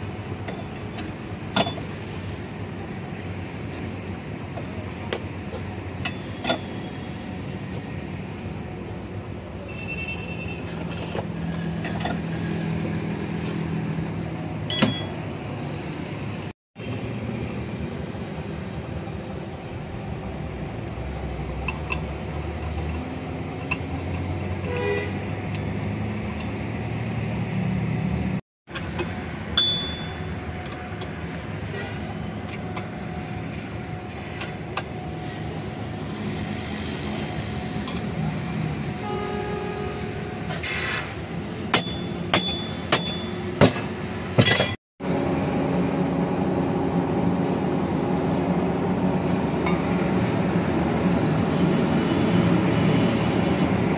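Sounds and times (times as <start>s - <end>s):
hand tools clinking on metal: 41.7s - 44.8s.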